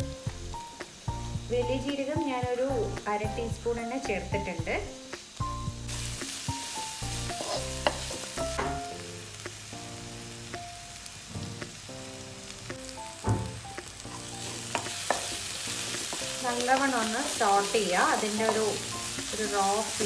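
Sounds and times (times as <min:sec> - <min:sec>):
spices sizzling in oil: 0:00.0 - 0:20.0
spatula scraping and tapping pan: 0:07.3 - 0:08.9, 0:14.1 - 0:16.4, 0:17.7 - 0:19.5.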